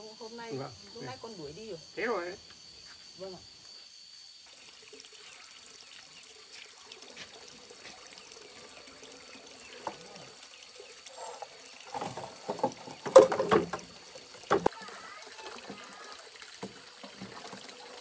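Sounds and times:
water pouring and splashing: 4.4 - 18.0.

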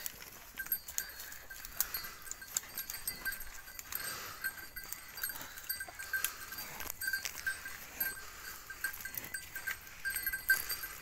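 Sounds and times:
footsteps on pine needles and twigs: 0.0 - 7.7
livestock bell clinking: 0.0 - 11.0.

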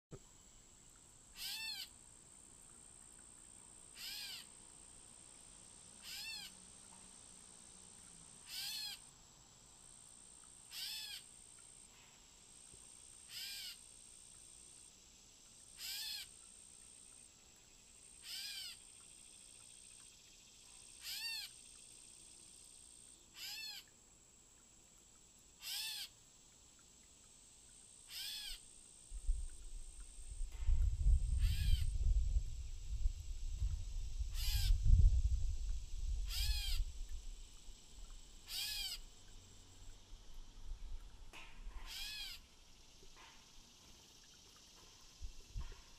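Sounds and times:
catbird mew calls: 1.4 - 1.9, 4.0 - 4.5, 6.0 - 6.5, 8.5 - 9.0, 10.7 - 11.2, 13.3 - 13.8, 15.8 - 16.3, 18.2 - 18.8, 21.0 - 21.5, 23.4 - 23.8, 25.6 - 26.1, 28.1 - 28.6, 31.4 - 31.9, 34.4 - 34.7, 36.3 - 36.8, 38.5 - 39.0, 41.8 - 42.4.

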